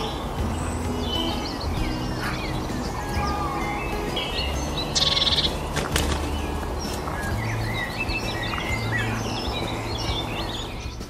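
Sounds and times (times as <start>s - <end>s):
fast high bird trill: 0.0s - 11.0s
songbirds chirping: 0.0s - 11.0s.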